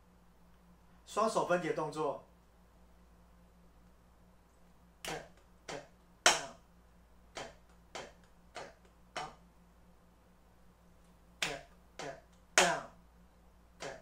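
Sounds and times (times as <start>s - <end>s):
drumsticks striking a practice pad: 5.0s - 6.6s, 7.3s - 9.4s, 11.4s - 13.0s, 13.8s - 14.0s.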